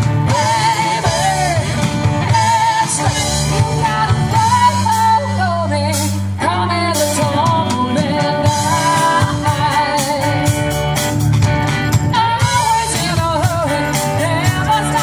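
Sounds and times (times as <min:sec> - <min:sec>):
steady drum beat: 0:00.0 - 0:06.3, 0:07.0 - 0:15.0
bass guitar: 0:00.0 - 0:15.0
electric guitar: 0:00.0 - 0:15.0
person singing with wavering voice: 0:00.3 - 0:10.5.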